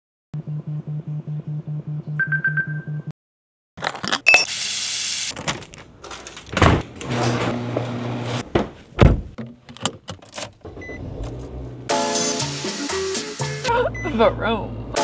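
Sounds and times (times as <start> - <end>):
car door thudding shut: 8.5 - 9.4.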